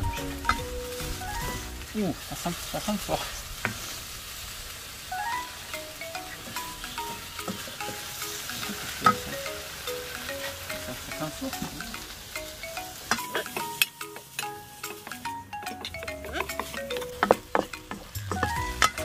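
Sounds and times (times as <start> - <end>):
vegetables sizzling in oil: 0.0 - 19.0
metal spatula scraping wok: 6.2 - 19.0.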